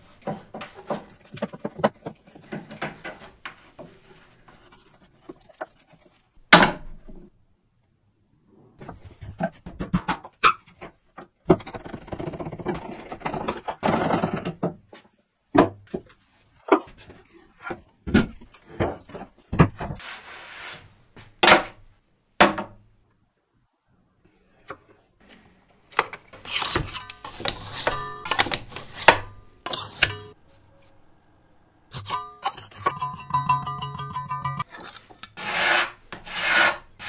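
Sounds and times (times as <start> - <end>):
metal scrape on steel blade: 35.4 - 36.9.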